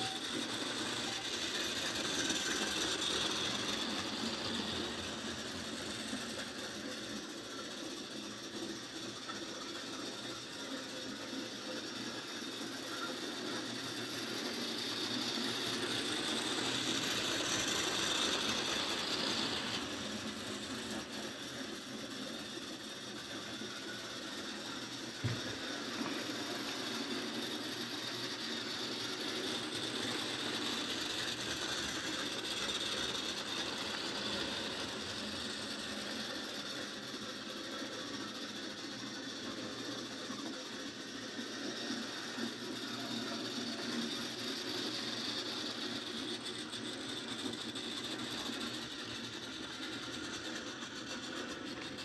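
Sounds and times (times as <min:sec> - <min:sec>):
model train motor whirring: 0:00.0 - 0:52.0.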